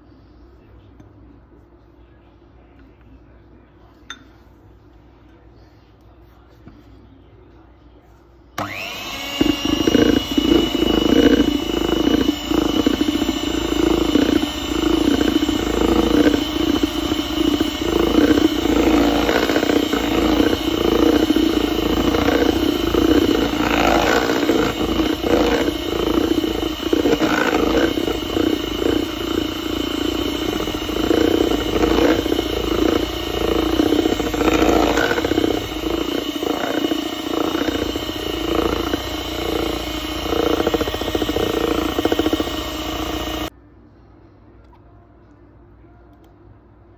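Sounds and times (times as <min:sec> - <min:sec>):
electric hand mixer running: 0:08.6 - 0:43.5.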